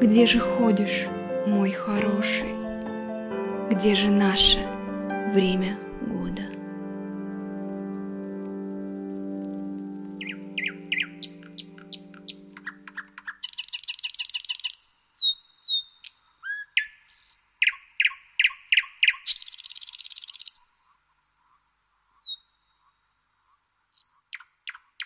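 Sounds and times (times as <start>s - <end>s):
songbirds singing: 9.8s - 25.0s.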